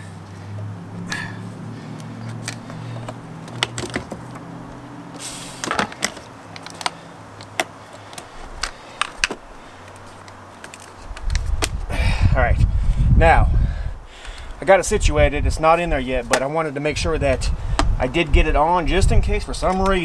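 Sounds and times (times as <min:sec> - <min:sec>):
low hum: 0:00.0 - 0:05.6
battery clamps clicking and clinking: 0:05.6 - 0:11.8.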